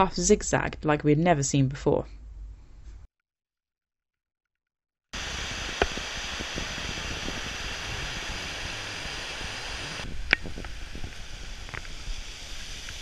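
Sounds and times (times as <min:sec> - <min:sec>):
mountain stream rushing: 0:05.2 - 0:13.0.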